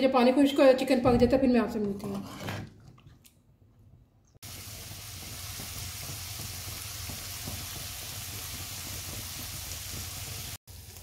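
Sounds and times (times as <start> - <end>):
chicken sizzling in frying pan: 4.4 - 11.0.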